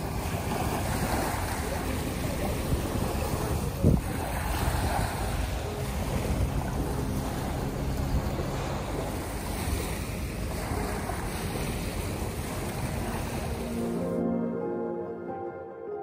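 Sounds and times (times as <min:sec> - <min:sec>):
waves lapping on shore: 0:00.0 - 0:14.8
wind noise on microphone: 0:02.4 - 0:07.2.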